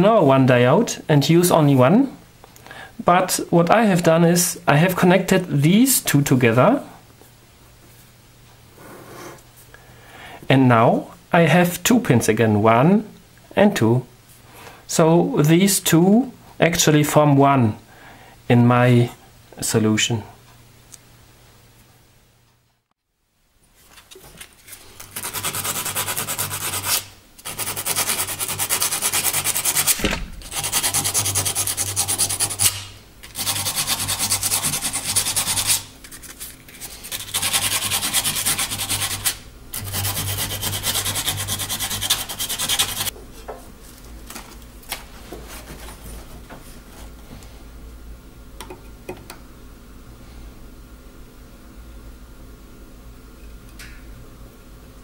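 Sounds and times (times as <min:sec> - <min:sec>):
sandpaper rubbing by hand: 0:25.0 - 0:43.1.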